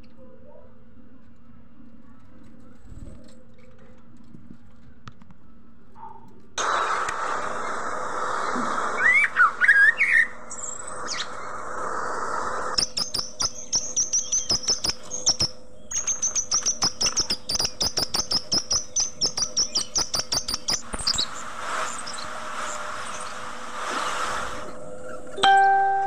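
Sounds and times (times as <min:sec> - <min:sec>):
budgerigars chirping: 0:12.8 - 0:23.4.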